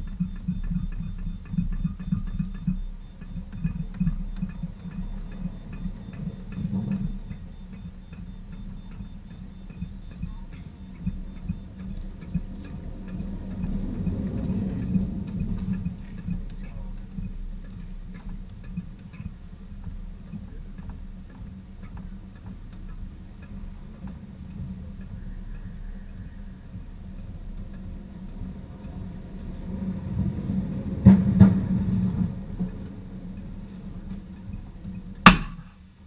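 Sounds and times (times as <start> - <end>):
racing vehicles passing: 0.0 - 35.3
light ticking: 0.0 - 36.0
sharp knock: 35.2 - 35.8.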